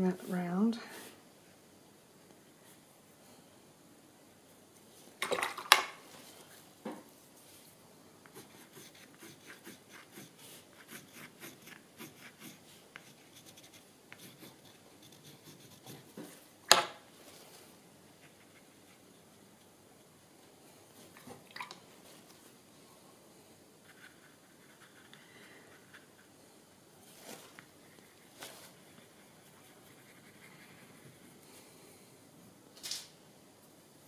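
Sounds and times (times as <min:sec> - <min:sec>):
paintbrush scrubbing on paper: 0:08.3 - 0:16.2, 0:23.8 - 0:26.4, 0:27.0 - 0:31.4.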